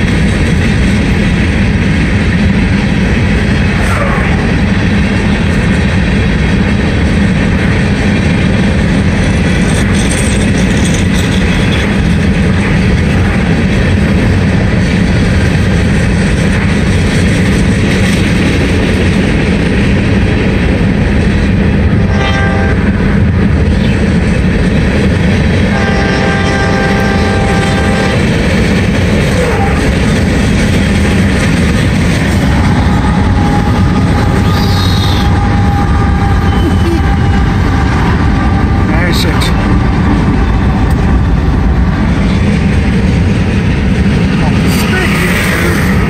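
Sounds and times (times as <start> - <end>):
freight train rolling: 0.0 - 46.0
locomotive horn: 21.9 - 23.1, 25.7 - 28.3, 29.4 - 29.9, 32.7 - 41.0.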